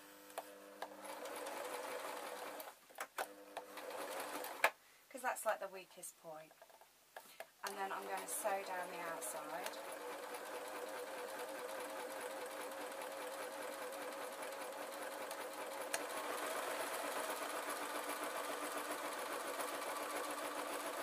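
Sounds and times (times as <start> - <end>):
sewing machine running: 0.8 - 2.7, 3.3 - 4.6, 7.7 - 21.0.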